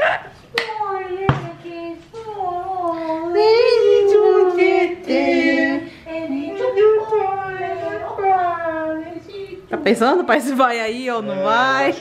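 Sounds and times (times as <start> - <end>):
high voice singing wordless tune: 0.6 - 9.7.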